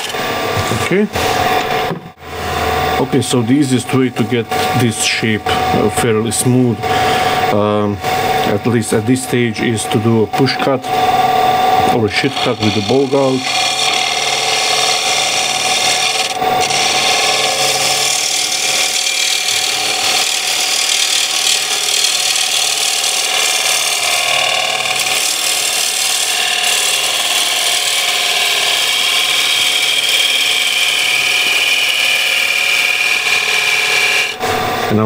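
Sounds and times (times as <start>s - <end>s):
gouge scraping wood on lathe: 11.1s - 35.0s.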